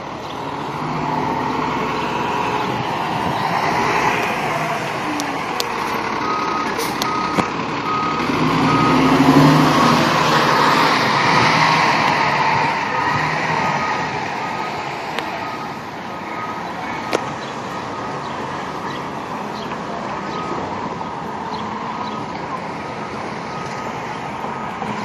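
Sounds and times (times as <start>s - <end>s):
truck engine running: 0.0s - 25.0s
backup alarm beeping: 6.2s - 9.2s.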